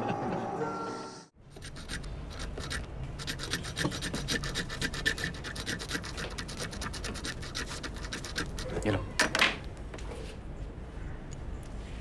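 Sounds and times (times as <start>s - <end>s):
paint scrubbed on palette: 1.5s - 8.8s.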